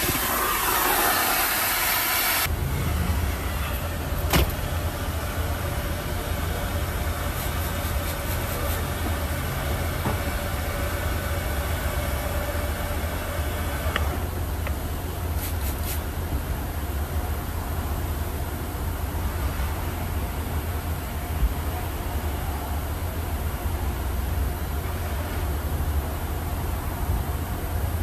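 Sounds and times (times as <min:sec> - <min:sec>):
water spray hissing: 0:00.0 - 0:02.5, 0:15.2 - 0:16.2
motor vehicle rumbling: 0:02.4 - 0:28.0.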